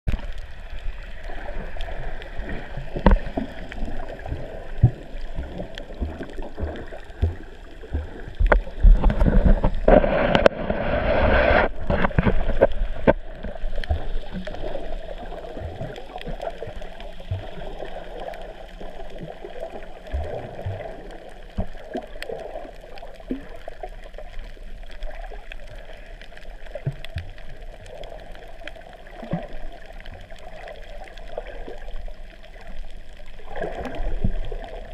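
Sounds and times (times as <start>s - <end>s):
muffled underwater water wash: 0.0s - 34.9s.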